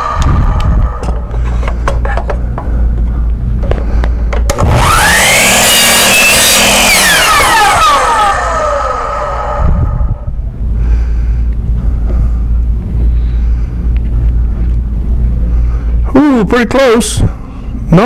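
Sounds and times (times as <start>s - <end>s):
steady low hum: 0.0s - 18.0s
miter saw motor whine: 4.5s - 10.4s.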